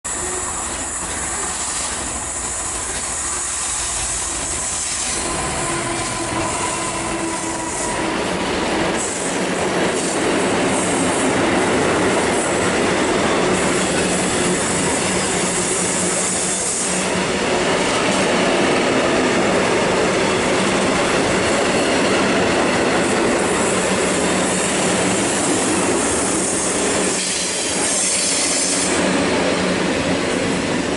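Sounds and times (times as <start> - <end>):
diesel locomotive engine: 0.0 - 30.9
train wheel squeal: 0.1 - 11.2, 12.4 - 17.2, 21.4 - 30.0.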